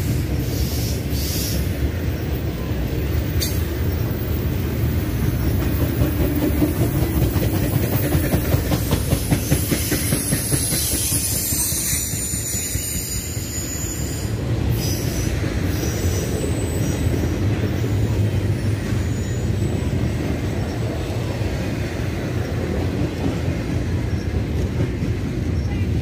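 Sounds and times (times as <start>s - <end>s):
train wheels rumbling on rails: 0.0s - 26.0s
high wheel squeal: 8.5s - 20.7s.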